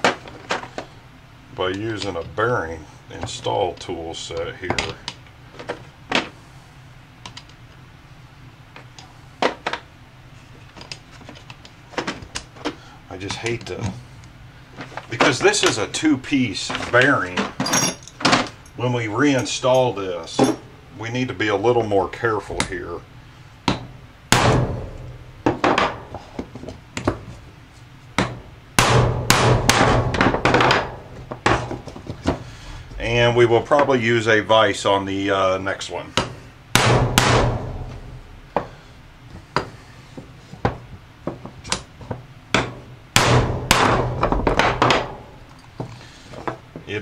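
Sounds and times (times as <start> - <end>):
hammer striking metal: 36.8 - 38.2.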